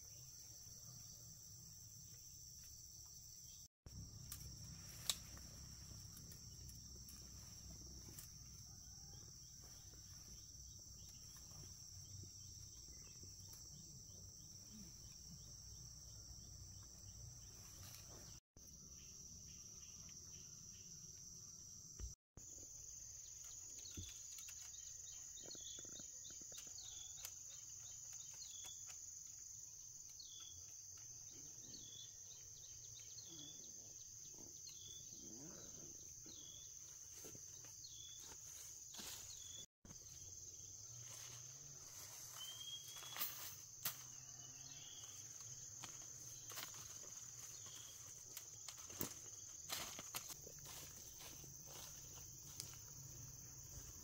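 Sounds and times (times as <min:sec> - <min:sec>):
insects droning: 0:00.0 - 0:54.0
bird chirping: 0:42.3 - 0:43.5.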